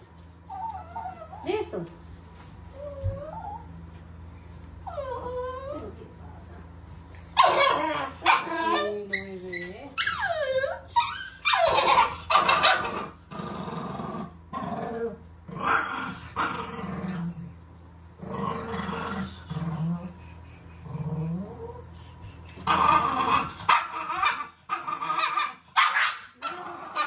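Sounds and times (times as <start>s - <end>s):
puppy whining: 0.0s - 1.7s, 2.7s - 3.9s, 4.6s - 6.0s, 6.8s - 13.2s
puppy growling: 4.7s - 17.6s, 18.2s - 27.0s.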